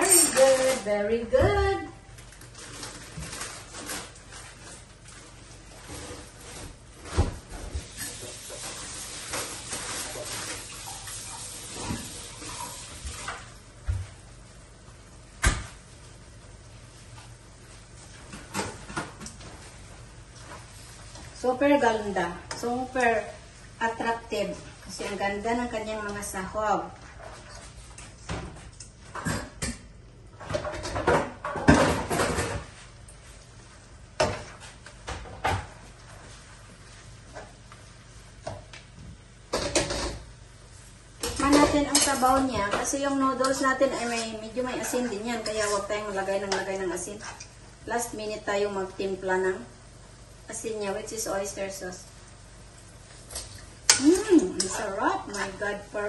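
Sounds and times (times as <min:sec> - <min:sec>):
utensils scraping in a pan: 0:00.0 - 0:00.9, 0:41.2 - 0:47.5, 0:53.1 - 0:55.7.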